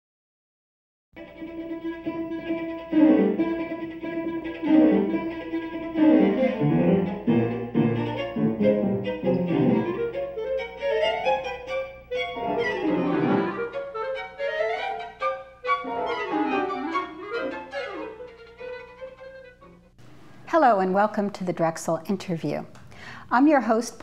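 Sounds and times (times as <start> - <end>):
bowed and plucked strings music: 1.2 - 20.0.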